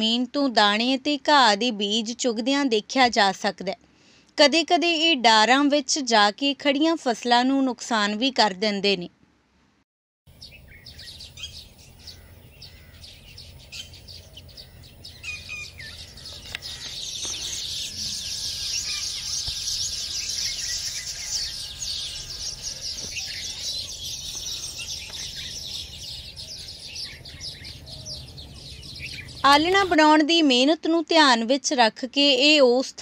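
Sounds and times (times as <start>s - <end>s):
birds chattering and chirping: 10.3s - 30.1s.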